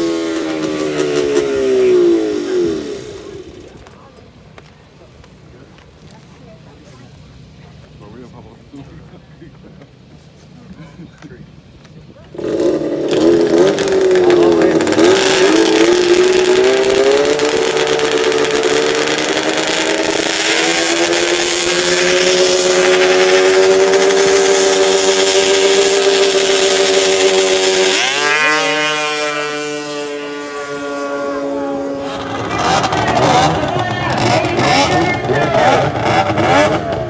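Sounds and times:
snowmobile engine revving: 0:00.0 - 0:04.7, 0:12.2 - 0:37.0.

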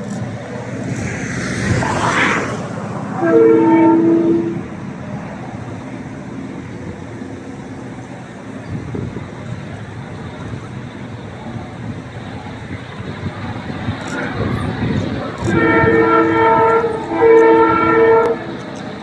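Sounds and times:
train rumble: 0:00.0 - 0:19.0
locomotive air horn blasts: 0:03.1 - 0:04.7, 0:15.4 - 0:18.6.

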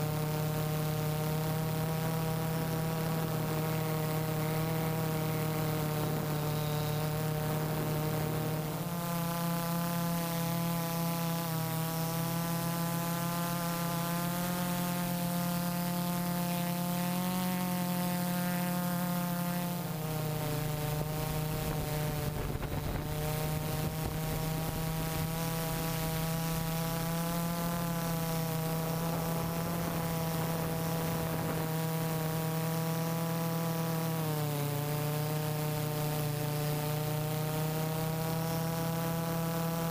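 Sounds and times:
drone motors whining: 0:00.0 - 0:39.9.

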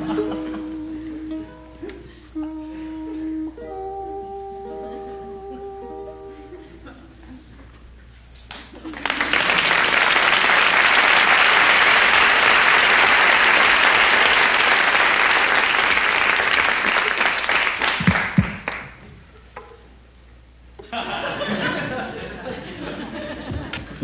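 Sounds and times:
audience applauding: 0:08.5 - 0:19.0.

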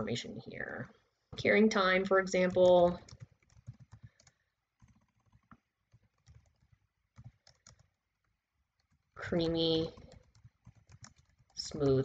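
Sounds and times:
faint keyboard typing: 0:01.4 - 0:12.0.

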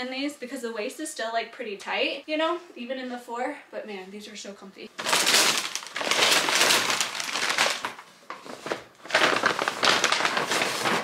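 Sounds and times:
paper bags rustling: 0:05.0 - 0:11.0.

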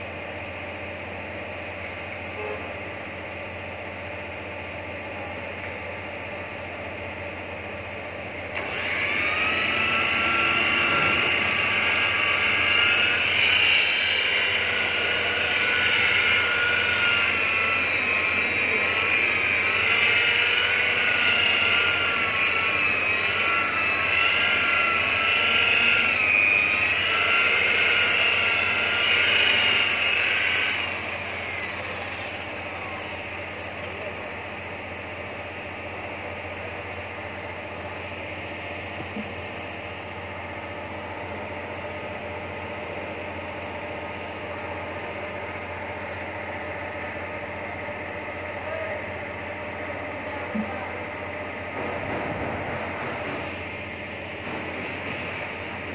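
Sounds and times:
electric polisher whining: 0:08.5 - 0:34.0.

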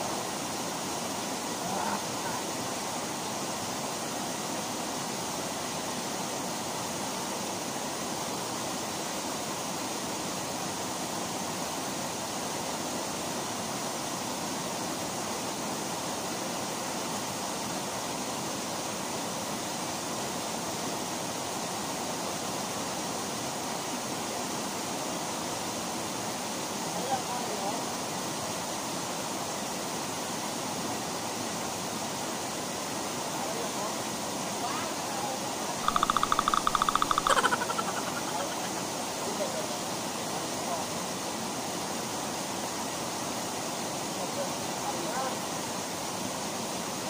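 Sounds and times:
waterfall pouring into pool: 0:32.4 - 0:40.9.

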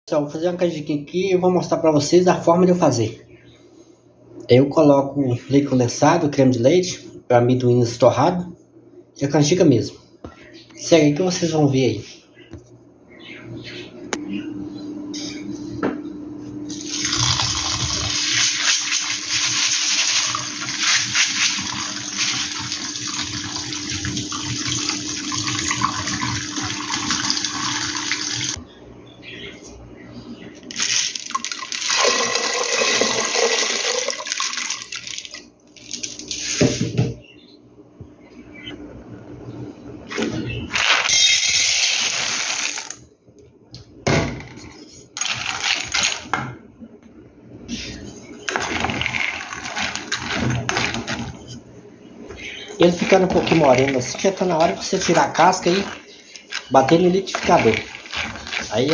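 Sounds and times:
peanuts rattling into metal pot: 0:30.7 - 0:36.2, 0:52.8 - 0:58.9.

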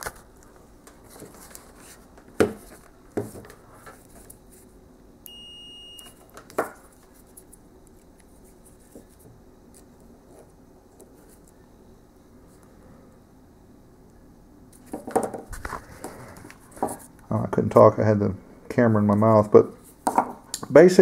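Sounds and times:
high continuity beep: 0:05.3 - 0:06.2.

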